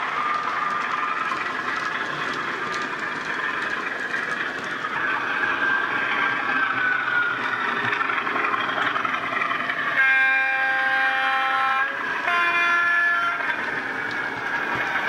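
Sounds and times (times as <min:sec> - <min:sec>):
two-tone horn: 0:10.0 - 0:13.5.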